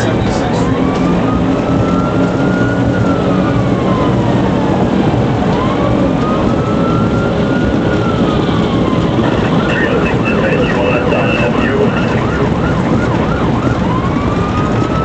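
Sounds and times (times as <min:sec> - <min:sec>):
car engine and road noise: 0:00.0 - 0:15.0
police siren wailing: 0:00.0 - 0:15.0.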